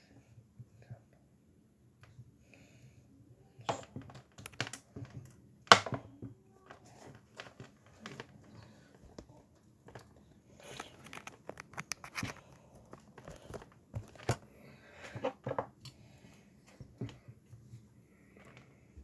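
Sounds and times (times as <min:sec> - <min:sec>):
object being handled: 0:03.6 - 0:15.8.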